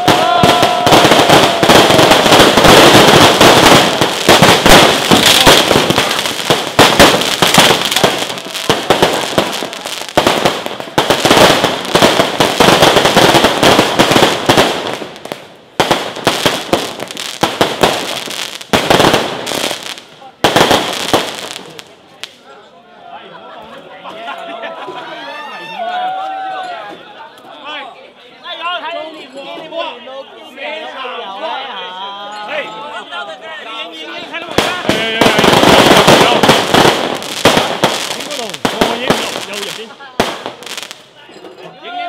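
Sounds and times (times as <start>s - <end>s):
fireworks crackling bangs: 0.0s - 22.4s, 34.3s - 41.2s.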